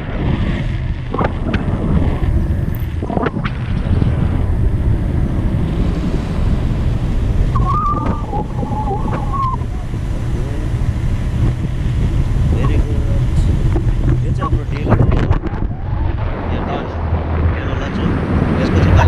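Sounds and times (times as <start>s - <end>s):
wind buffeting microphone: 0.0s - 19.0s
thin wavering high tone: 7.5s - 10.0s.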